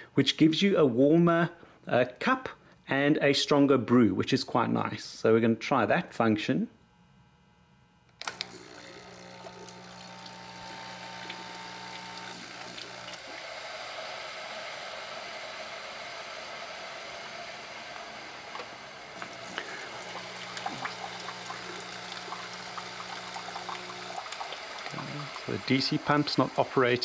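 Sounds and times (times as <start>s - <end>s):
pump low hum: 8.2s - 27.0s
water rushing through coffee maker: 8.4s - 27.0s.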